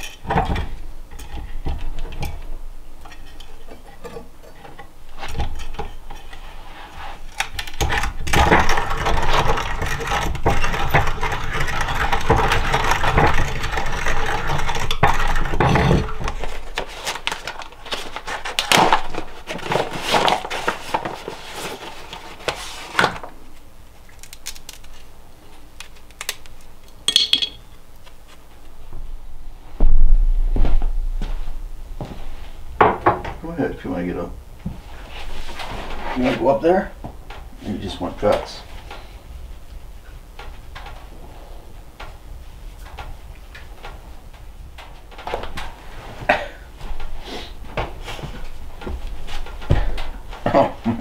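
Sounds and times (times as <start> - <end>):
rustling and rattling: 0.0 - 23.4, 34.7 - 51.0
utensils clicking and knocking: 7.4 - 17.7, 27.1 - 27.7.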